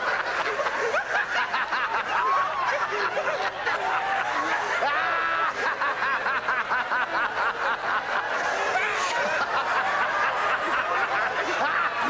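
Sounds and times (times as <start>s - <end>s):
people laughing: 0.0s - 12.0s.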